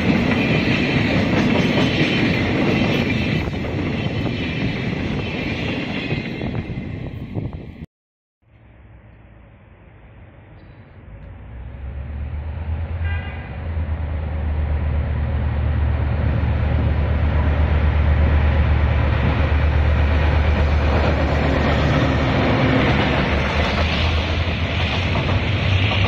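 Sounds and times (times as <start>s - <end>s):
train wheels rolling on rails: 0.0s - 7.6s, 13.7s - 26.0s
locomotive engine drone: 8.5s - 26.0s.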